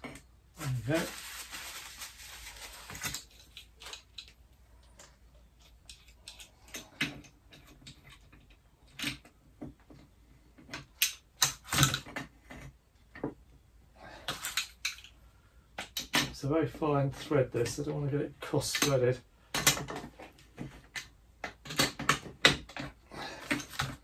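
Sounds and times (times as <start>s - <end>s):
rag rustling: 0.6s - 7.0s.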